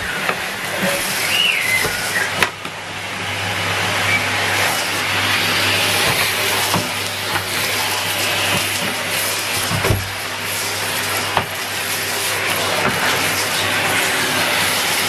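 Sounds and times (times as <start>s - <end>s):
vacuum cleaner motor hum: 0.0s - 15.0s.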